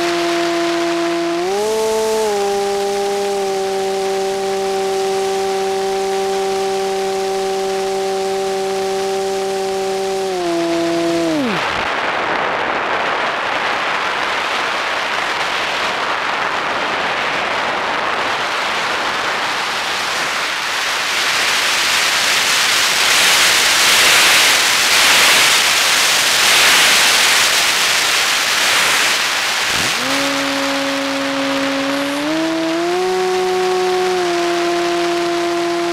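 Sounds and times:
model plane motor whine: 0:00.0 - 0:11.8, 0:22.4 - 0:35.9
wind rushing over microphone: 0:00.0 - 0:20.6, 0:26.4 - 0:35.9.

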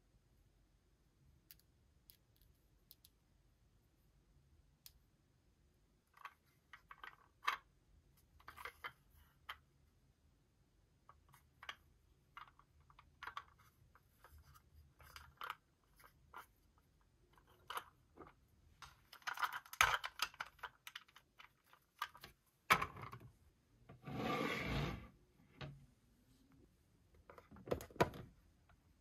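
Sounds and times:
steady scrape: 0:24.0 - 0:25.2.

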